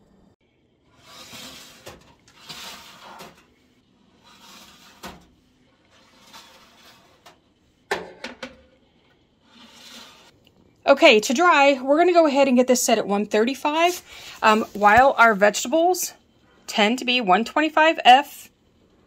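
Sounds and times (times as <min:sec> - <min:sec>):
metal trays scraping into slots: 0:01.0 - 0:03.5, 0:04.2 - 0:05.3, 0:05.9 - 0:07.4, 0:09.5 - 0:10.3.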